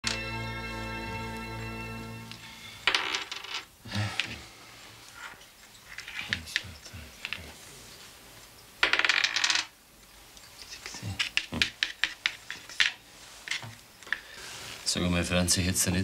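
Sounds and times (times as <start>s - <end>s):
die clattering on wooden table: 2.9s - 3.7s, 8.8s - 9.7s.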